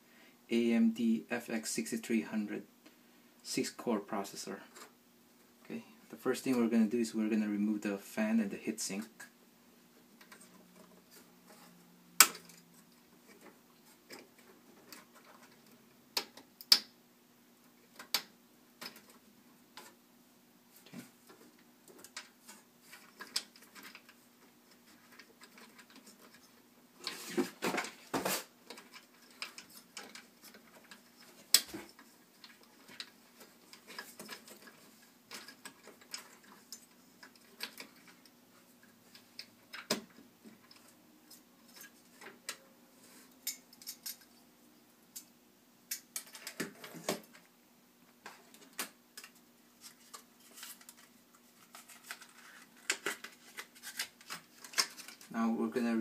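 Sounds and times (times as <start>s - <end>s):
scraping and rustling: 48.2s - 55.3s.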